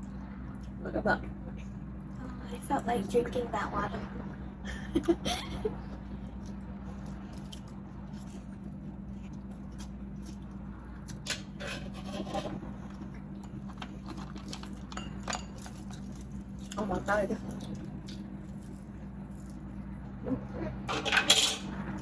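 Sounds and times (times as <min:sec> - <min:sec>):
steady low hum: 0:00.0 - 0:22.0
quiet chewing: 0:12.9 - 0:20.0.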